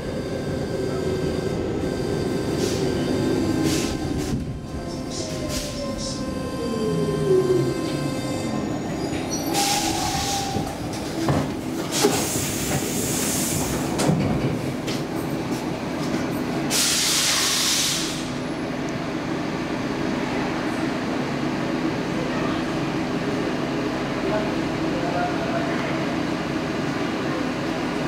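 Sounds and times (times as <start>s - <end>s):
train humming at station: 0.0s - 28.0s.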